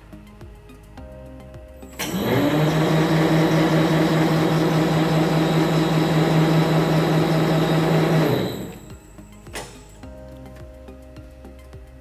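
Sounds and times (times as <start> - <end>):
electric motor humming: 2.0 - 9.0.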